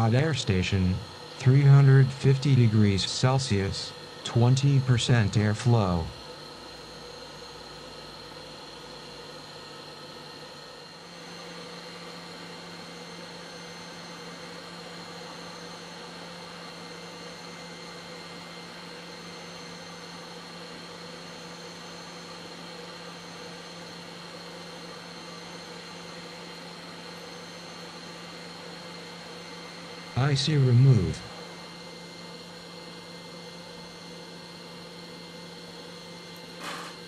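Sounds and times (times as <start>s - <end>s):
hot air station hissing: 36.5s - 37.0s.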